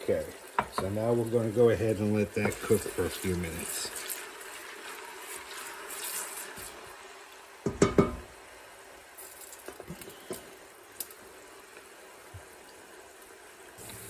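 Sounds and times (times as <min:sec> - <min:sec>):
onions sizzling in oil: 0:00.0 - 0:14.0
wooden spoon knocking on pot: 0:00.6 - 0:00.9, 0:02.4 - 0:02.6, 0:07.6 - 0:08.3.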